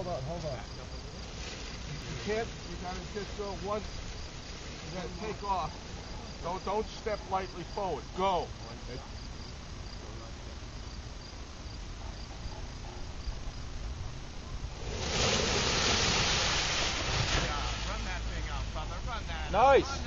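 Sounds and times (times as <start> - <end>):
crickets chirping: 0.0 - 20.0
wind noise: 13.2 - 17.9.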